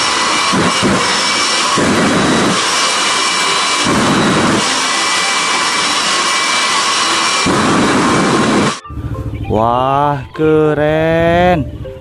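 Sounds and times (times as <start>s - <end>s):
jet engine turbine whine: 0.0s - 9.6s
deep engine rumble: 0.0s - 12.0s.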